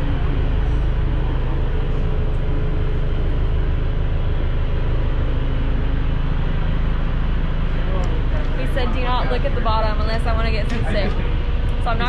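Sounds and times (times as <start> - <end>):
boat engine low drone: 0.0 - 12.0
faint steady hum: 0.0 - 12.0.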